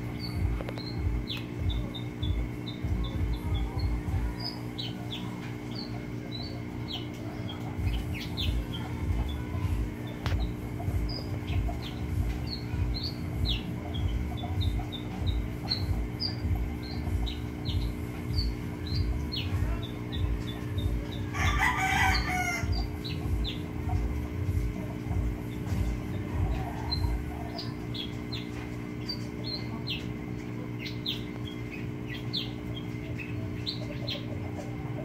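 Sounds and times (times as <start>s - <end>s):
low throbbing hum: 0.0s - 35.0s
small birds chirping: 0.0s - 35.0s
rooster crowing: 21.2s - 22.8s.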